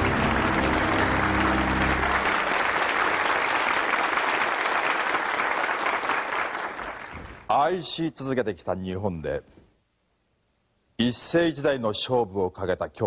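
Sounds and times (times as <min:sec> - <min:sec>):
low sustained music sting: 0:00.0 - 0:03.0
studio audience applauding: 0:00.0 - 0:07.4.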